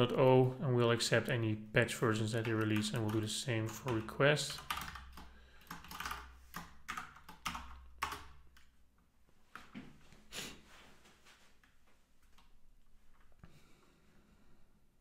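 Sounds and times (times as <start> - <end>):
computer keyboard keystrokes: 2.4 - 8.7.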